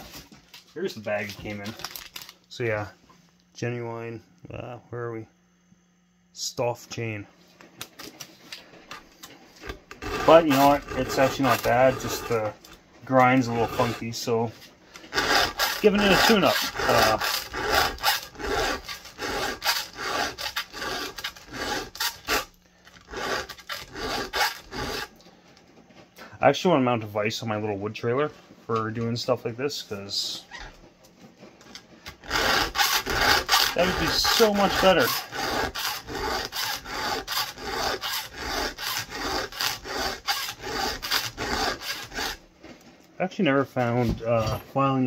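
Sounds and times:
file rasping on chainsaw chain: 9.9 - 14.2, 15.0 - 25.1, 32.2 - 42.4.

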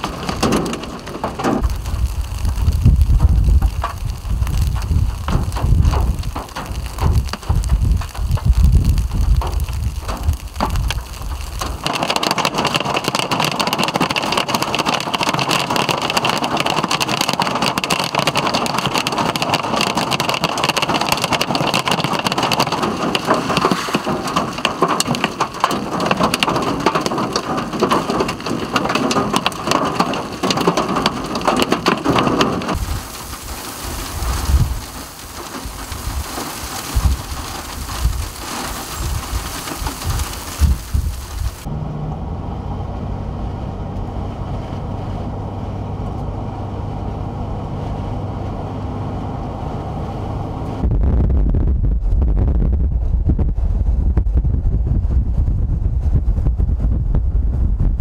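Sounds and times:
wind gusts on microphone: 0.0 - 13.0, 20.8 - 45.9, 49.5 - 58.0
hail clattering on road: 0.0 - 41.7.

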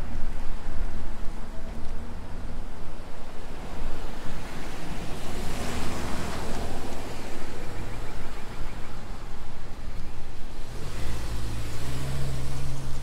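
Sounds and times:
vehicle passing by: 10.6 - 13.0.

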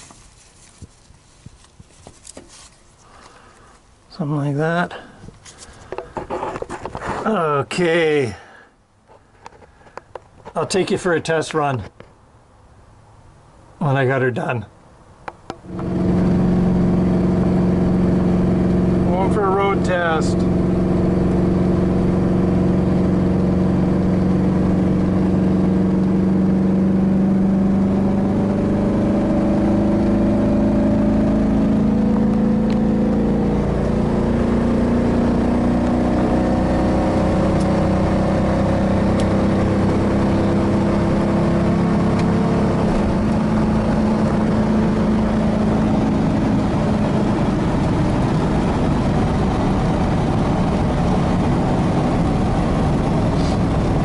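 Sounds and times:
road noise: 0.0 - 54.0
pickup truck engine pulling: 15.6 - 54.0.

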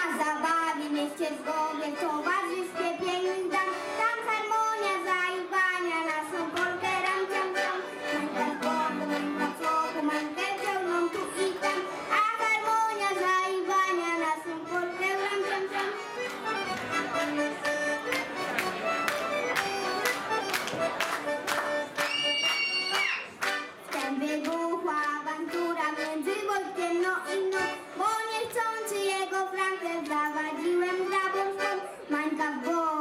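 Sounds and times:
child singing into a microphone: 0.0 - 16.2, 23.9 - 33.0
accordion: 0.0 - 33.0.

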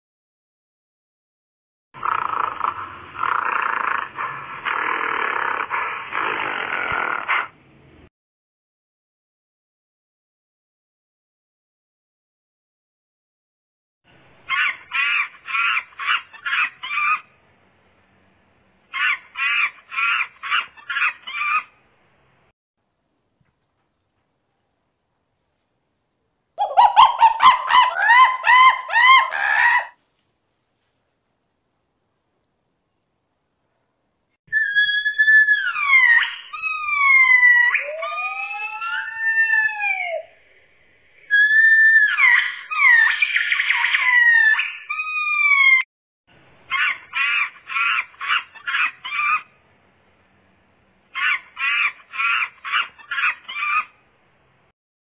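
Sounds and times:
harsh animal calls: 2.0 - 7.6, 26.6 - 30.0, 34.5 - 40.4, 41.2 - 45.8, 51.1 - 54.0
faint background hiss: 21.9 - 26.6, 30.0 - 34.4
lower rising and falling call: 26.6 - 30.0, 34.5 - 40.6.

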